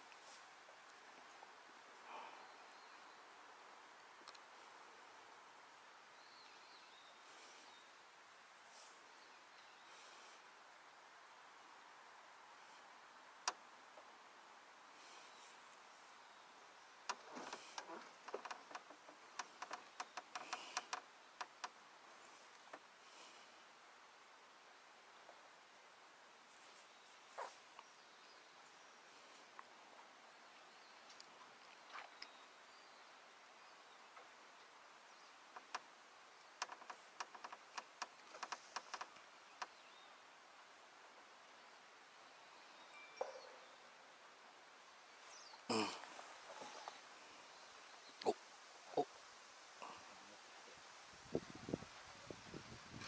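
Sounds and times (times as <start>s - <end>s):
low steady hiss: 0.0s - 53.0s
faint sharp clicks: 4.2s - 4.5s, 17.0s - 21.8s, 35.5s - 35.9s, 36.6s - 39.8s.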